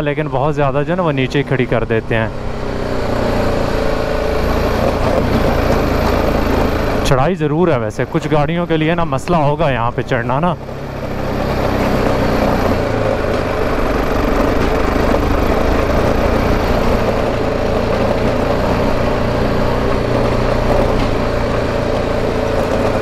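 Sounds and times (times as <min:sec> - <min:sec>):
motorcycle engine under load: 0:00.0 - 0:23.0.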